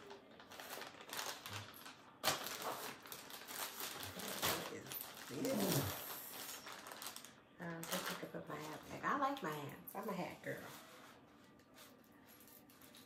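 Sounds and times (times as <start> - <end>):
sharp plastic crackles: 0.0 - 9.6
plastic packaging crinkling: 0.0 - 9.7.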